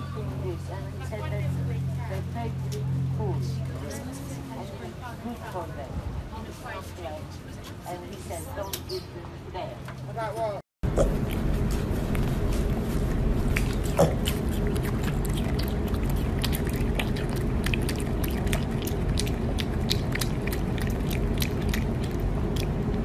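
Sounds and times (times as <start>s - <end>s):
low background hum: 0.0s - 23.0s
piglet chewing and smacking: 10.9s - 23.0s.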